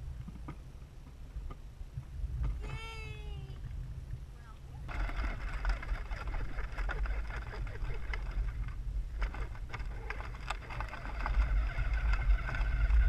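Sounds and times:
faint steady whine: 0.0 - 13.0
toy quad rolling over grass: 4.8 - 13.0
rattles and knocks from bumps: 4.9 - 13.0.

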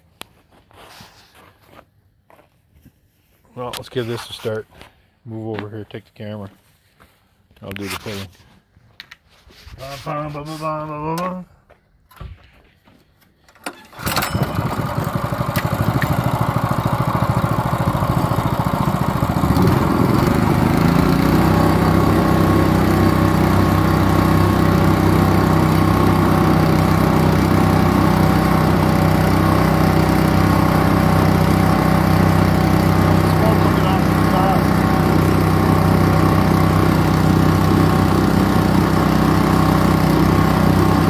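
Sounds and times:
recoil starter pull: 13.5 - 24.4
small engine running: 13.7 - 41.0.

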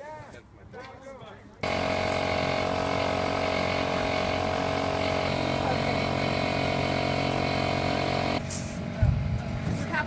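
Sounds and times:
small engine humming: 1.6 - 8.4.

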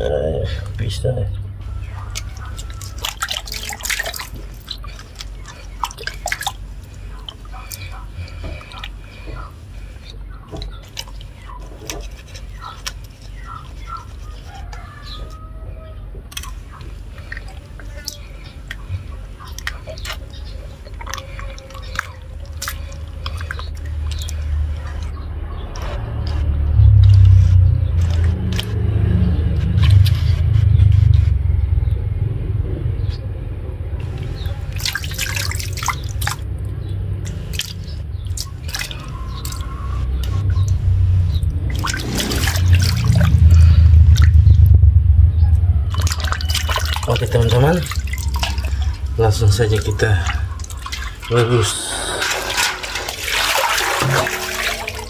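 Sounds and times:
water sloshing in steel basin: 1.6 - 15.5, 16.3 - 25.2, 34.0 - 44.6, 45.6 - 55.0
wet squelching and splashing: 1.6 - 15.6, 16.2 - 31.1, 34.0 - 44.8, 45.6 - 55.0
low rumble: 24.5 - 34.6, 39.9 - 52.6.

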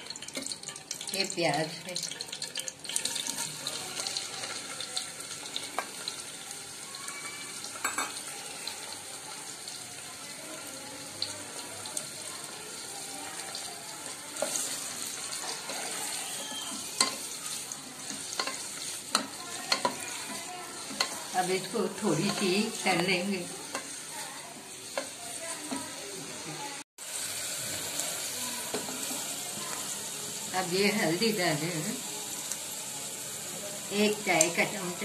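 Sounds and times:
onions sizzling in hot oil: 0.0 - 35.0
wooden spoon stirring: 13.3 - 25.9.

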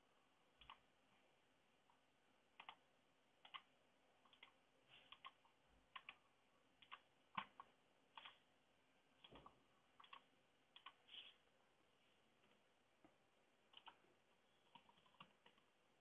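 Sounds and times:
computer mouse clicks: 0.6 - 0.8, 2.6 - 2.8, 3.4 - 6.2, 6.8 - 8.4, 9.2 - 11.0, 13.7 - 14.0, 14.6 - 15.7.

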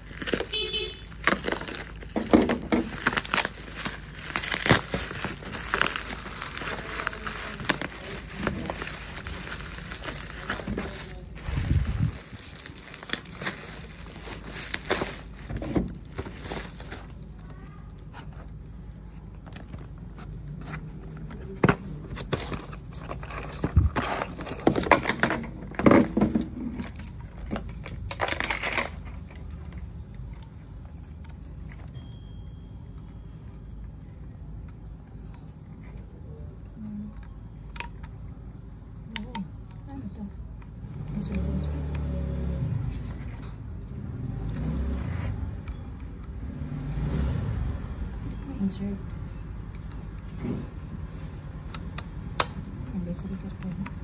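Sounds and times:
plastic wrapping crinkling and tearing: 0.0 - 19.9.

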